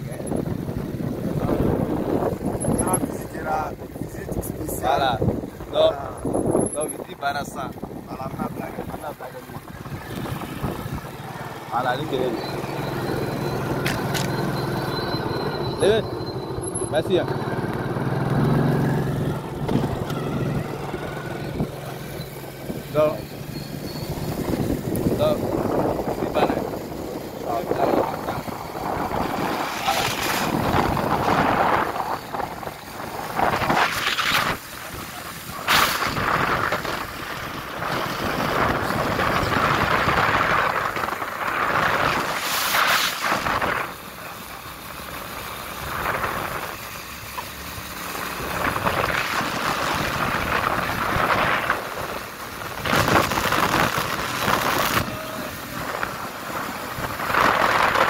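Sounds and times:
wind buffeting thumps: 0.0s - 11.2s, 17.6s - 21.9s, 24.1s - 42.5s, 48.4s - 55.2s, 55.8s - 58.0s
wind rushing over microphone: 0.0s - 11.2s, 17.6s - 44.0s, 45.8s - 46.9s, 48.3s - 58.0s
vehicle road noise: 0.0s - 58.0s.

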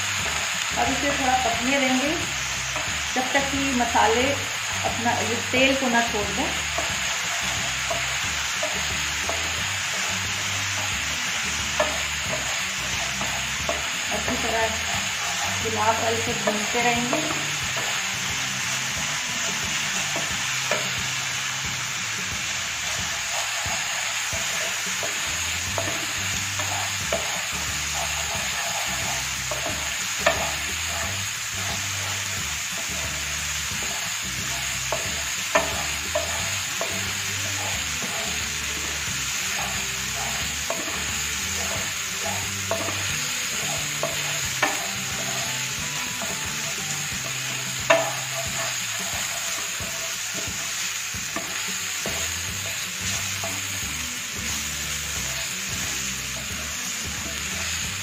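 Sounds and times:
paste sizzling in hot oil: 0.0s - 58.0s
wooden spatula scraping pan: 0.2s - 21.0s, 22.8s - 58.0s
spatula knocking on pan: 6.1s - 18.4s, 22.4s - 54.0s.

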